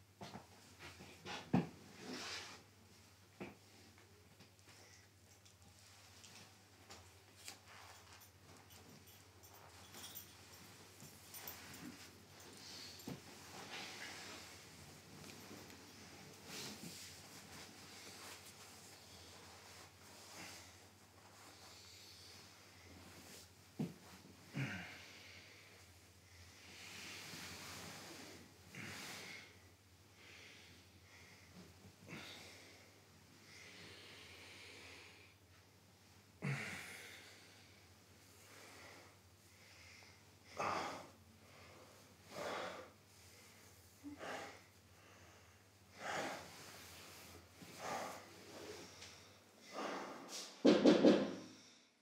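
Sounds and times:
person breathing slowly: 0:24.6 - 0:35.4, 0:38.4 - 0:50.6.

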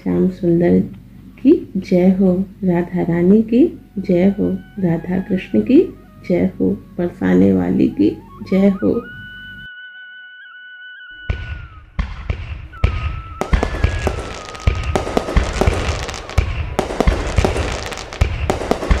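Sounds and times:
thin whistling tone: 0:07.6 - 0:12.0, 0:12.6 - 0:18.5
fireworks bangs and crackling: 0:11.3 - 0:19.0.

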